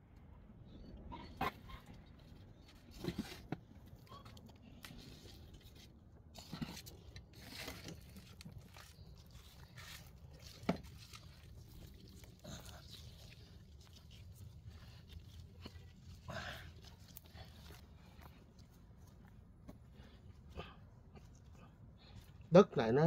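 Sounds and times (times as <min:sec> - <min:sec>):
shovel scraping soil: 0:06.3 - 0:13.0.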